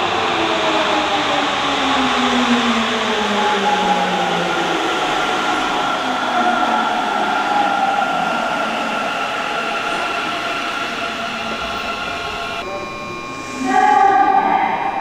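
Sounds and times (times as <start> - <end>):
train rolling noise: 0.0 - 12.7
train inverter electric tones: 0.2 - 15.0.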